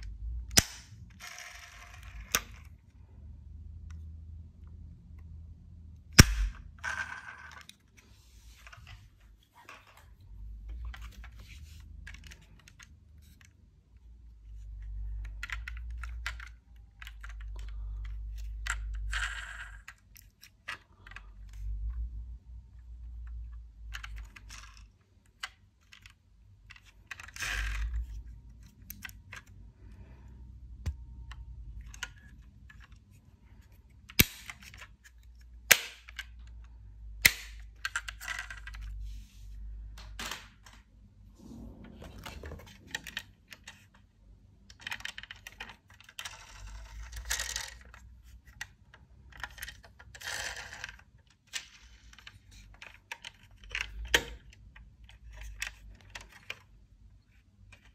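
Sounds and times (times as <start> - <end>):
toy cars clinking and rattling: 1.1 - 2.7, 44.8 - 48.0, 49.3 - 54.1.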